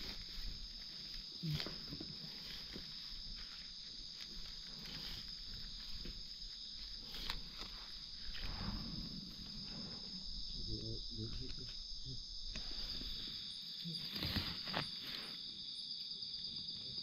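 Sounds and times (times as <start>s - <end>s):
rustling leaf litter and twigs: 0.0s - 9.6s, 12.7s - 15.6s
insect chorus drone: 0.0s - 17.0s.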